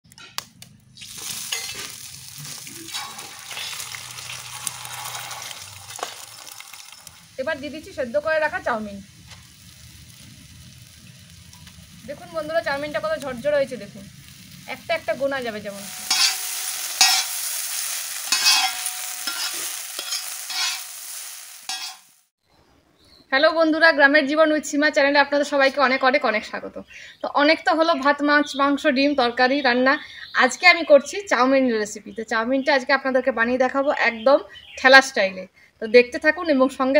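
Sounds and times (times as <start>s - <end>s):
egg sizzling in hot oil: 1.0s - 22.3s
scraping on a griddle: 1.2s - 6.2s, 15.9s - 22.2s.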